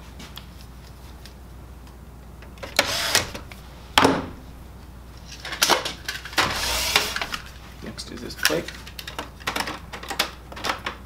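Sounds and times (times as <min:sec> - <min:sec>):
electric screwdriver running: 0:02.8 - 0:03.4, 0:06.5 - 0:07.4.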